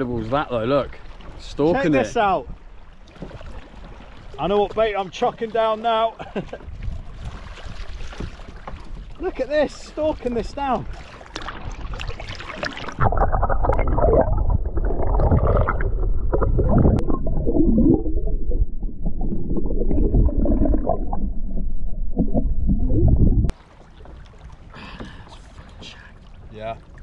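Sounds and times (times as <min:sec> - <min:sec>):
water sloshing: 0:00.0 - 0:27.0
muffled underwater gurgling: 0:12.7 - 0:23.5.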